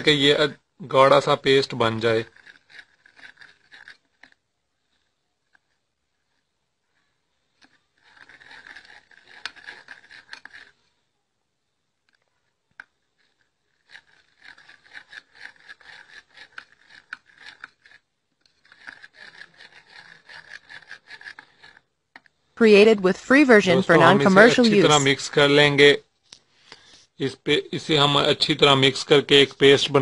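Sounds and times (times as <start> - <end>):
spoon scraping paste in bowl: 1.5 - 10.9, 12.1 - 25.2.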